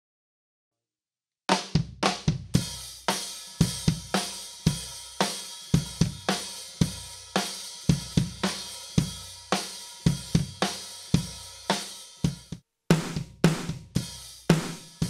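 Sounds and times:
snare drum strokes: 12.9 - 13.8, 14.5 - 15.0
bass drum strokes: 12.9 - 14.8.

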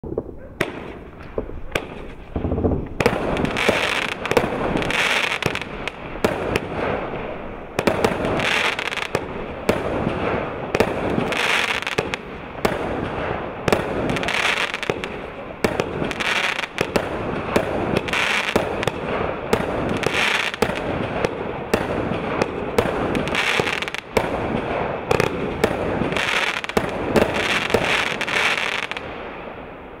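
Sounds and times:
firework launch pops: 0.0 - 7.0
firework crackle and hiss: 0.0 - 30.0.

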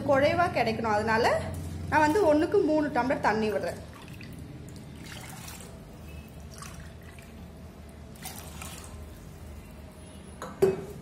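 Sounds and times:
water splashing and dripping: 3.6 - 5.8
water pouring into a pot: 3.8 - 7.6, 8.2 - 9.2.

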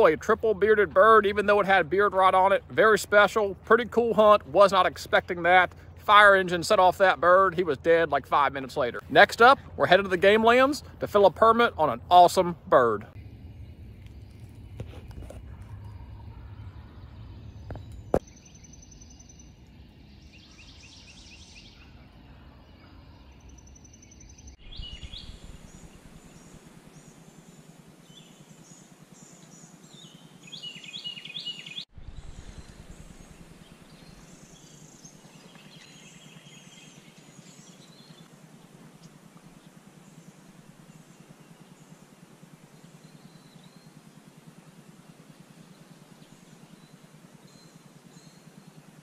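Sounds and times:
birds chirping and trilling: 0.0 - 49.0
low rumble: 12.0 - 21.1, 24.3 - 27.5, 31.9 - 35.9.

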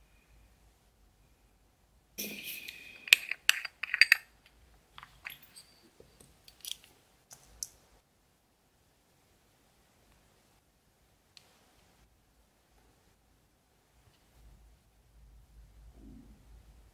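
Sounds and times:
scrape on jar: 2.2 - 4.2
beads clicking: 2.2 - 7.8.

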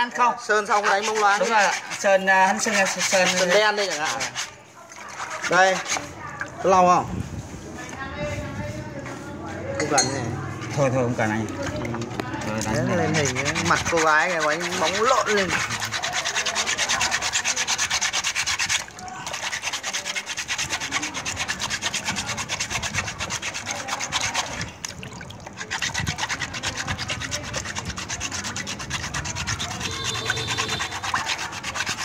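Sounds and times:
sandpaper rubbing on metal: 0.6 - 6.2, 12.4 - 24.8, 25.6 - 32.0.

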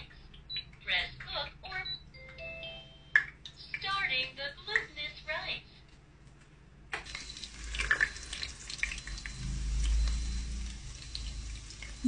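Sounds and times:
light clicks and drips: 3.1 - 5.0, 5.9 - 12.0
low rumble: 9.0 - 12.0.

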